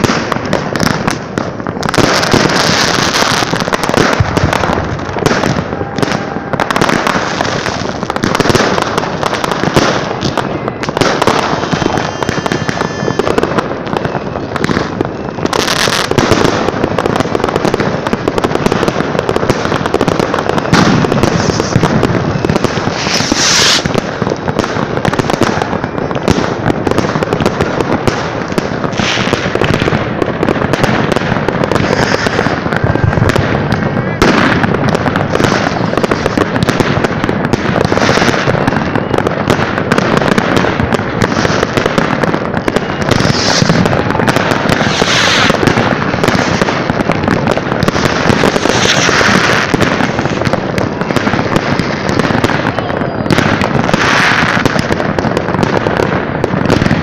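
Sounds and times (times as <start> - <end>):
fireworks banging and crackling: 0.0 - 57.0
high firework whistle: 1.8 - 17.8, 19.4 - 27.4, 31.6 - 36.9, 40.2 - 54.8.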